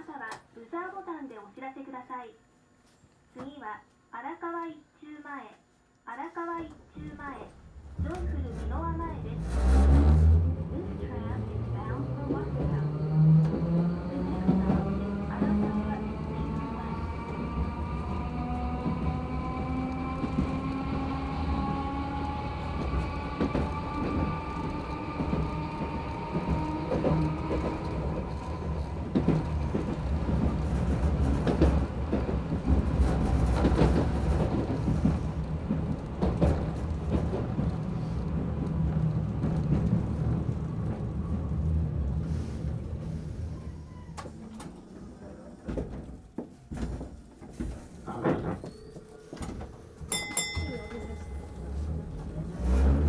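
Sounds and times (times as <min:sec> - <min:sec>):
streetcar motor whine: 0:07.6 - 0:46.2, 0:49.3 - 0:53.0
wheels knocking on rails: 0:29.1 - 0:40.4.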